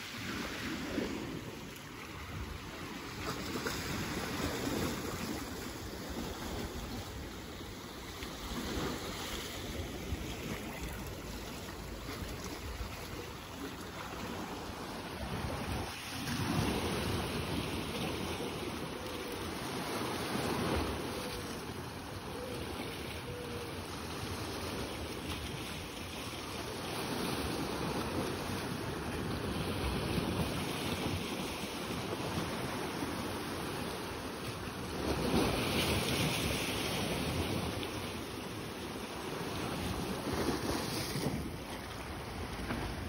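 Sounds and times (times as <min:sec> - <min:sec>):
waves washing against rocks: 0:08.3 - 0:21.0.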